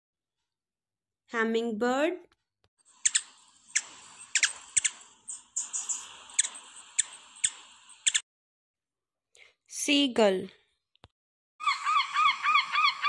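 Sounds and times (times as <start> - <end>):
small bird chirping sharply: 2.9 - 8.2
steady hiss: 2.9 - 8.2.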